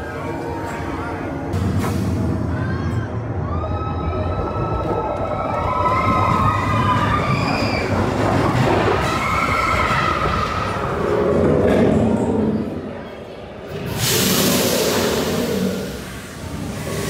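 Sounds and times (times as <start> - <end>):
roller coaster rumbling on track: 0.0 - 17.0
riders screaming: 2.5 - 11.1.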